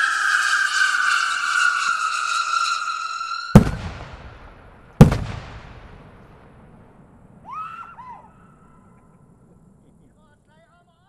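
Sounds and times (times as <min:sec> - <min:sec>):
firework screaming whistle: 0:00.0 - 0:05.2, 0:07.4 - 0:09.0
firework bangs echoing: 0:03.2 - 0:07.5.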